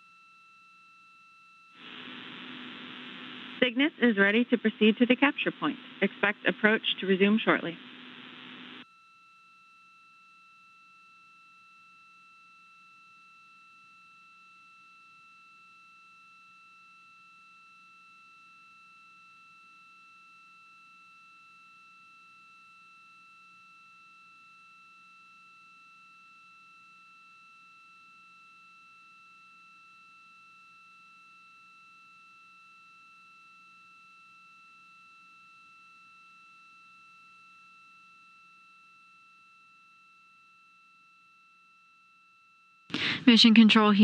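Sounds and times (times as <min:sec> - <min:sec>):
faint low hum: 0:01.8 - 0:08.8.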